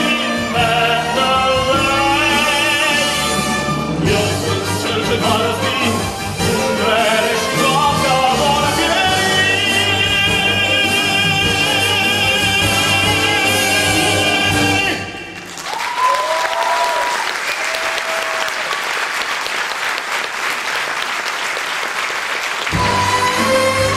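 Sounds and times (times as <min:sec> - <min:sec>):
man singing with vibrato: 0:00.0 - 0:15.5
orchestra playing: 0:00.0 - 0:15.6, 0:22.6 - 0:23.9
audience applauding: 0:15.3 - 0:23.9.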